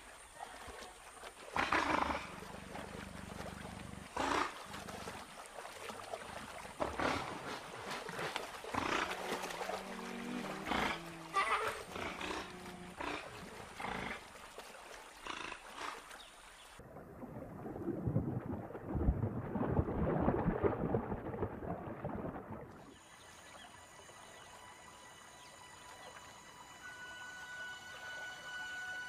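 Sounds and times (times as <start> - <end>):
otters snorting and growling: 1.5 - 5.3, 6.8 - 14.4, 15.2 - 16.1
underwater water and bubbles churning: 16.7 - 26.4
quiet steady tones: 22.8 - 29.0.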